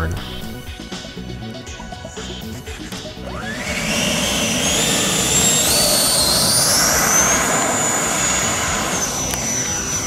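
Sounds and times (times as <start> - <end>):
electric ducted fan whining: 2.7 - 10.0.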